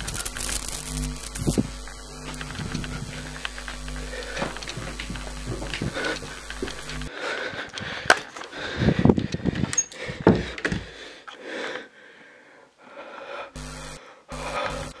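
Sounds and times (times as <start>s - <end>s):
buzzing digital glitch: 0.0s - 7.1s, 13.6s - 15.0s.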